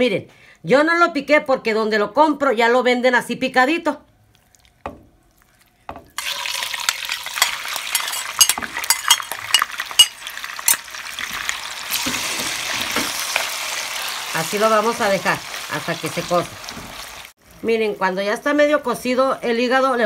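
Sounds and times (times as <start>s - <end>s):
metal spoon stirring in pot: 5.4s - 10.8s
liver sizzling in hot oil: 6.2s - 19.0s.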